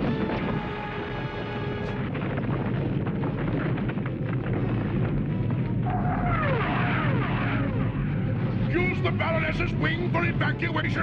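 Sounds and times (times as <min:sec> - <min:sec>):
dramatic music: 0:00.0 - 0:11.0
rumbling of sliding snow: 0:00.0 - 0:11.0.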